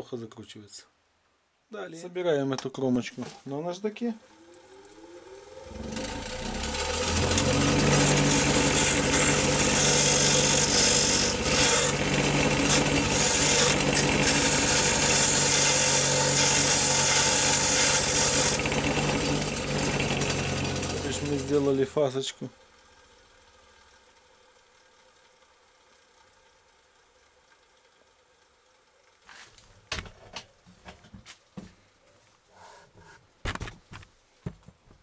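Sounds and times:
bench grinder motor humming: 4.2s - 22.0s
bolt grinding on abrasive wheel: 6.5s - 21.6s.

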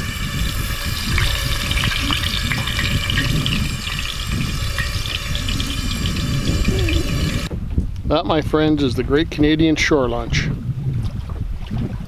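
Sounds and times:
oil sizzling with crackles: 0.0s - 7.5s
low rumble: 0.0s - 12.0s.

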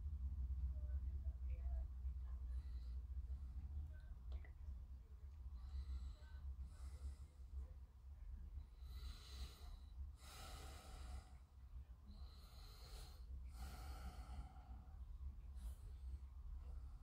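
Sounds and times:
low steady hum: 0.0s - 17.0s
person breathing slowly: 5.5s - 7.7s, 8.6s - 17.0s.

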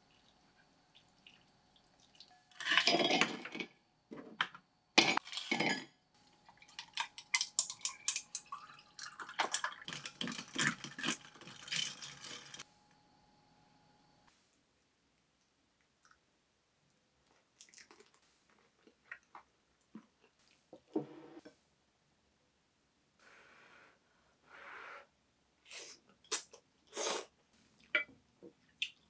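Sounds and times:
liquid trickling: 0.0s - 2.4s, 6.6s - 12.6s.

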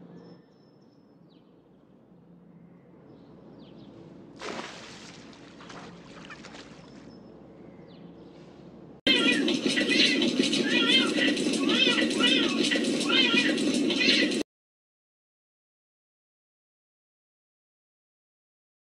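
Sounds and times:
cat splashing in pool: 4.4s - 7.1s.

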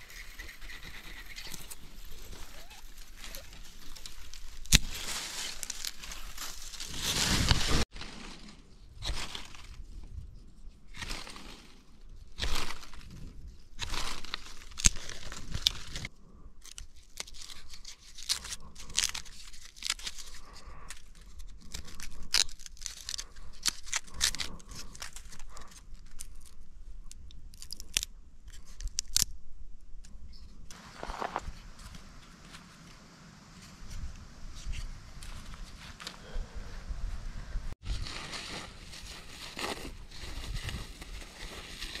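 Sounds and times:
stone scraping a stick: 0.0s - 2.4s
wood splitting and tearing: 0.1s - 7.9s, 13.8s - 29.3s.

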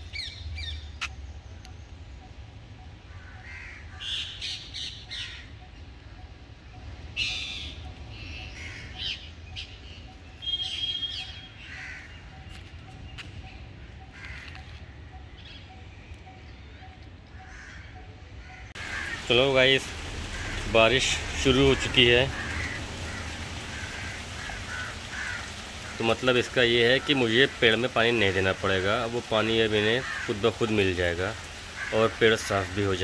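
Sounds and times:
crows cawing: 3.1s - 4.4s, 5.1s - 5.5s, 8.4s - 9.3s, 11.6s - 12.5s, 14.1s - 14.8s, 17.3s - 33.0s
other birds calling: 7.2s - 15.6s, 17.3s - 33.0s.

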